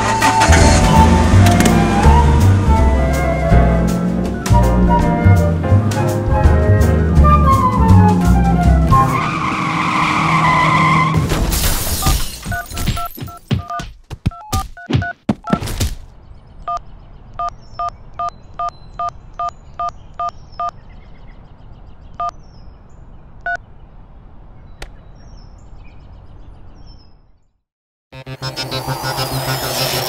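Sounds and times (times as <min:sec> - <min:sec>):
phone keypad beeps: 0:12.5 - 0:15.6, 0:17.4 - 0:20.7
faint birds chirping: 0:16.1 - 0:27.6.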